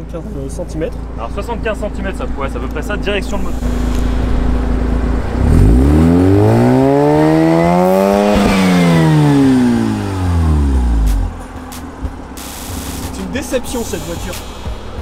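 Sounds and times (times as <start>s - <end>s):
rotary engine revving: 2.2s - 11.4s.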